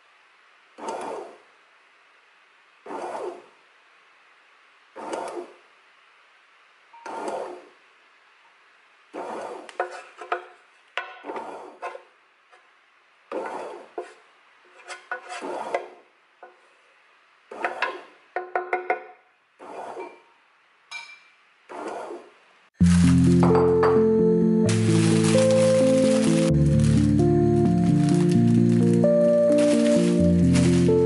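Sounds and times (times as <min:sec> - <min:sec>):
kneading paddle rasping scrape: 0:00.8 - 0:01.4, 0:02.9 - 0:03.5, 0:05.0 - 0:05.6, 0:07.0 - 0:07.8, 0:09.1 - 0:10.5, 0:11.1 - 0:12.1, 0:13.3 - 0:16.0, 0:17.5 - 0:18.2, 0:19.6 - 0:20.2, 0:21.7 - 0:22.3, 0:29.4 - 0:31.0
wooden spatula knocking in pan: 0:17.6 - 0:19.1.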